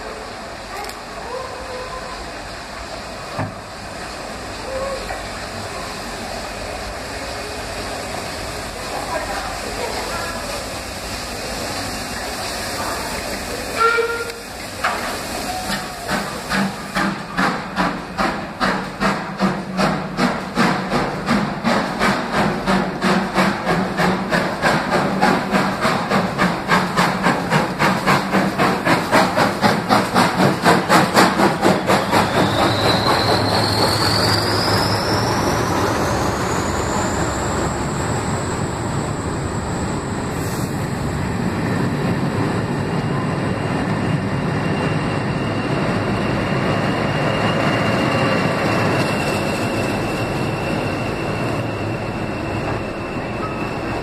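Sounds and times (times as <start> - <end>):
coaches rumbling on rails: 0.0 - 54.0
steam locomotive exhaust chuffing: 0.0 - 54.0
steam whistle toot: 13.8 - 14.5.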